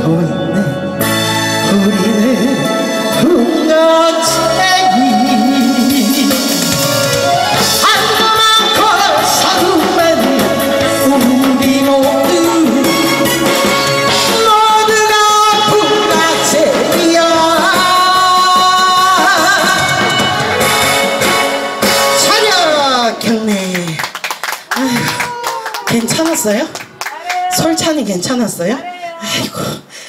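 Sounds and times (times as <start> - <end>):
woman singing into a microphone: 0.0 - 1.0, 1.6 - 6.8, 7.6 - 20.4
backing music: 0.0 - 23.5.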